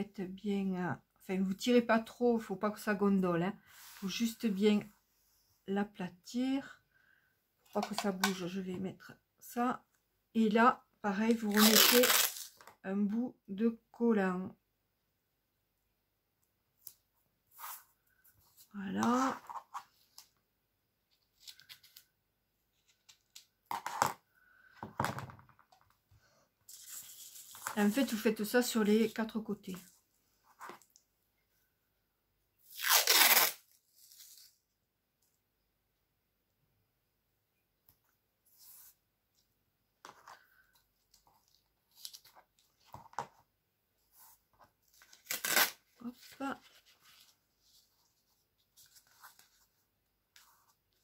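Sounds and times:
adhesive tape screeching off roll: 11.5s - 12.5s, 32.7s - 34.4s.

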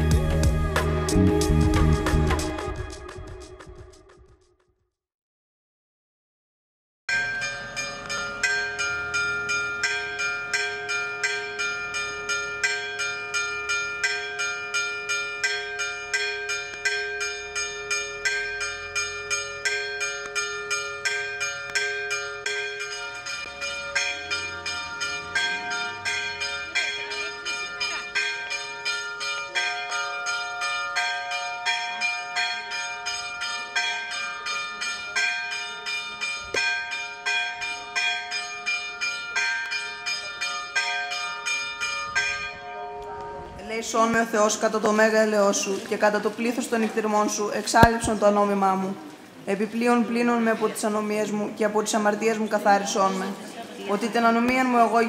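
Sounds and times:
church bells pealing: 7.1s - 48.8s.

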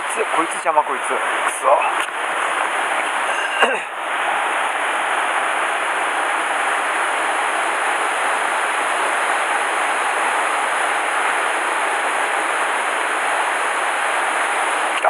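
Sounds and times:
stream rushing over rocks: 1.1s - 15.0s.

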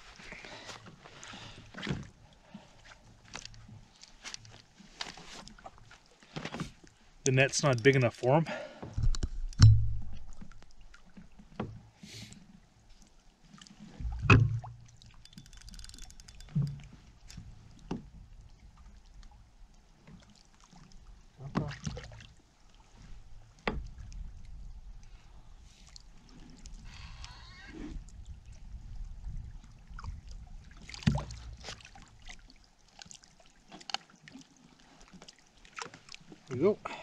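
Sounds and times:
knocks against kayak hull: 14.1s - 14.7s, 31.0s - 31.4s.

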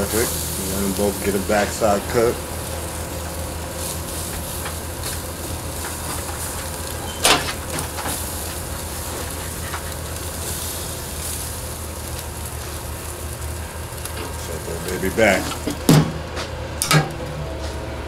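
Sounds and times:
ribs sizzling on a grill: 0.0s - 16.4s
fork clanking on grill grate: 16.8s - 17.4s.

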